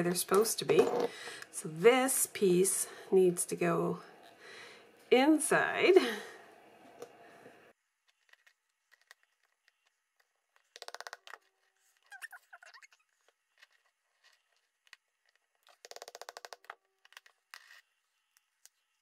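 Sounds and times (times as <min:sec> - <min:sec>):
small squeak: 0:12.0 - 0:13.8.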